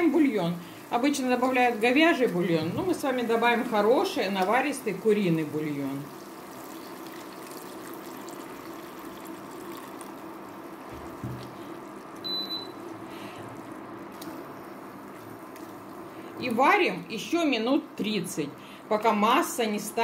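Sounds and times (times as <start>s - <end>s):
broth pouring and bubbling in pan: 0.0s - 16.4s
soft knock: 11.0s - 11.4s
short high beep: 12.3s - 12.8s.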